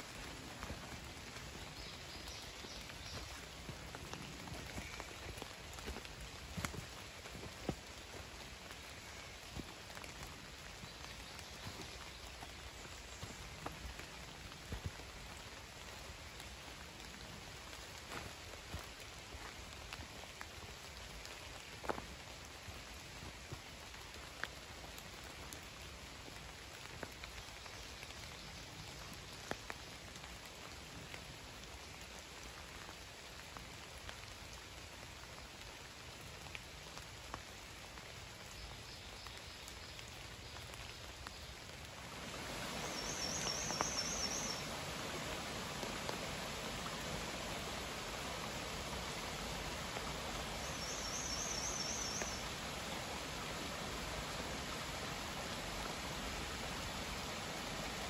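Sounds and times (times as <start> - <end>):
rain falling: 0.0 - 58.0
rush of flowing water: 0.0 - 58.0.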